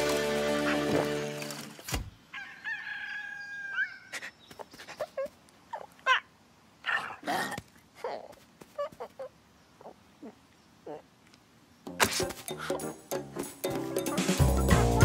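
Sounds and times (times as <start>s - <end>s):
clucks chirps and clicks: 3.8s - 6.1s, 7.6s - 10.0s.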